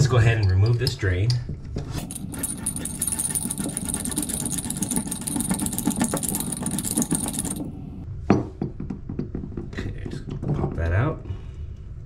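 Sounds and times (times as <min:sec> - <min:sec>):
metal threads scraping: 0:01.9 - 0:07.8.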